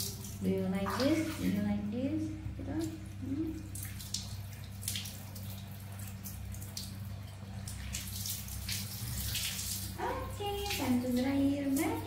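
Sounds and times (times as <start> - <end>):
water splashing and dripping: 0.0 - 1.8, 2.6 - 12.0
low hum: 0.0 - 12.0.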